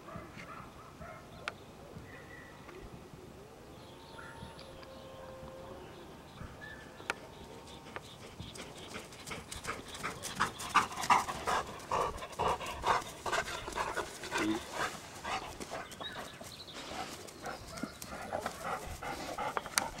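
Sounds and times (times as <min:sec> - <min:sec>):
dog panting: 0:07.7 - 0:20.0.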